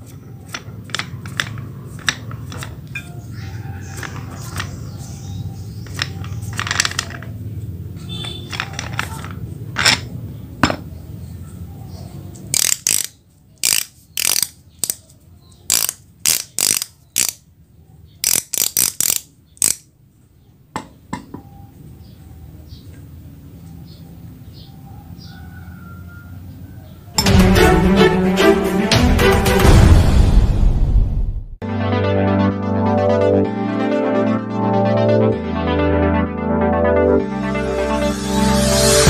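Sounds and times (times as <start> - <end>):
metal parts clicking and clinking: 0.0 - 5.1, 5.8 - 7.4, 8.0 - 10.8, 12.3 - 15.1, 15.7 - 17.4, 18.2 - 19.9.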